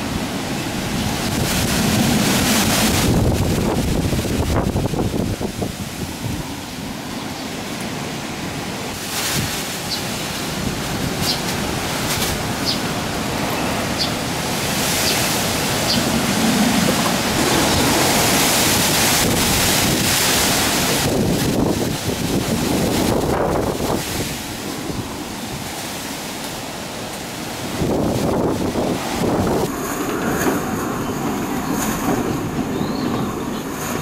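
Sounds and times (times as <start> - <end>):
wind buffeting microphone: 0.0 - 7.1, 8.3 - 34.0
wind gusting through trees: 0.0 - 34.0.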